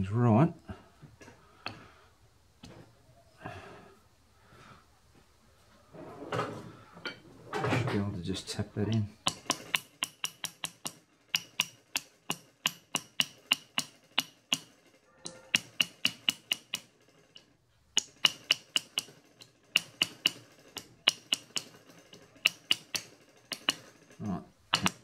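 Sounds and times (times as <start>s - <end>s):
mallet tapping on metal: 8.9s - 14.7s, 15.5s - 16.8s.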